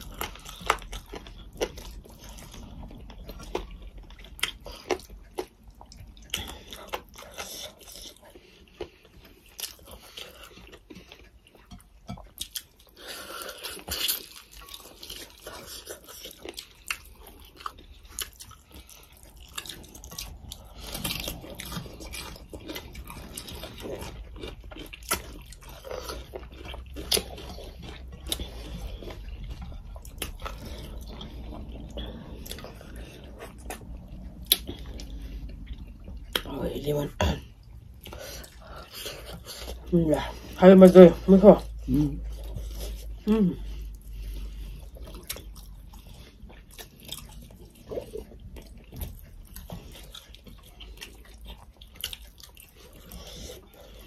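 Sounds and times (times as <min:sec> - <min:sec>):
people chewing and smacking lips: 0:00.0 - 0:54.0.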